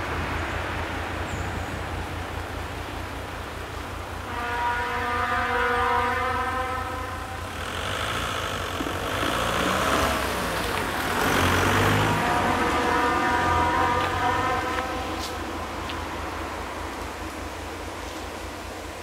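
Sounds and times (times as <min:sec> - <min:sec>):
car driving past: 0:06.6 - 0:18.2.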